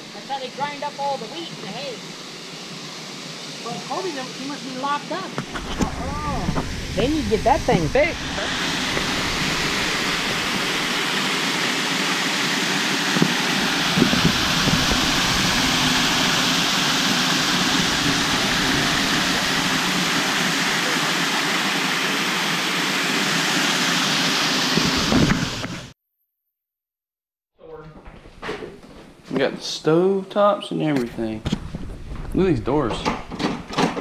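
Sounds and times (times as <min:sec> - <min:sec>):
water rushing and splashing: 0:05.4 - 0:25.9.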